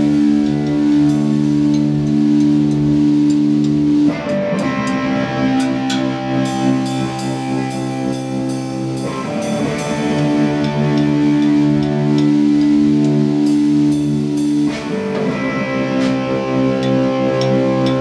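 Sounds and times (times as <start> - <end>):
drum kit playing: 0.0 - 18.0
electric guitar sustained chord: 0.0 - 18.0.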